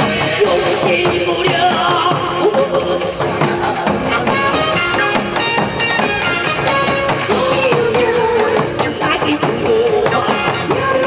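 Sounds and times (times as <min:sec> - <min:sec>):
folk band with drums: 0:00.0 - 0:11.0
person singing: 0:00.0 - 0:11.0.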